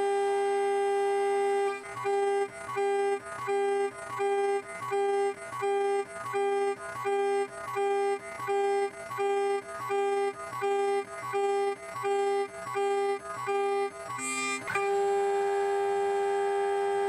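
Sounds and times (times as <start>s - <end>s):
milling machine high singing tone: 13.8s - 17.0s.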